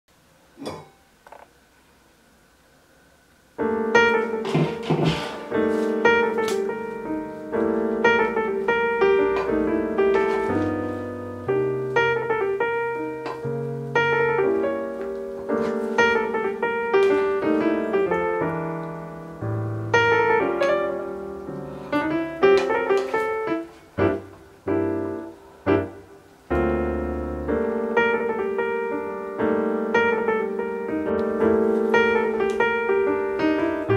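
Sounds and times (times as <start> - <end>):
solo piano music: 3.5 - 33.9.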